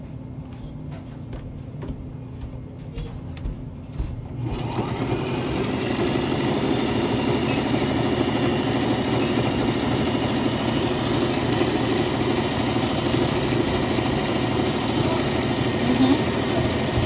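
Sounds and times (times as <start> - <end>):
sewing machine stitching: 4.4 - 17.0.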